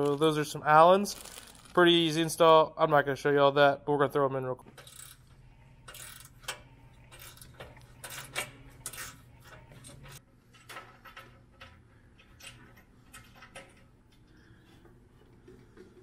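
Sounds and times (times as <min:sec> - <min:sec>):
metallic clinks of bolts and washers: 0:05.9 - 0:13.9.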